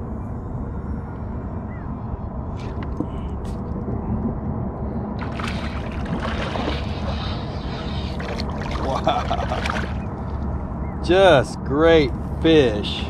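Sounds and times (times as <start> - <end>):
low steady rumble: 0.0 - 13.0
water sloshing and splashing: 5.2 - 10.4.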